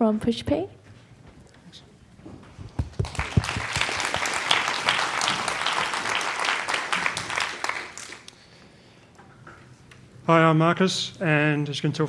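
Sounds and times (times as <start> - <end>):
audience applauding: 2.8 - 8.4.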